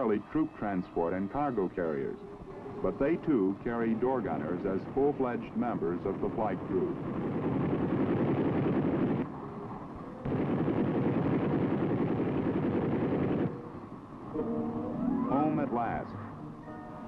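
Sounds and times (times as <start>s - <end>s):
machine gun firing bursts: 10.2s - 13.6s.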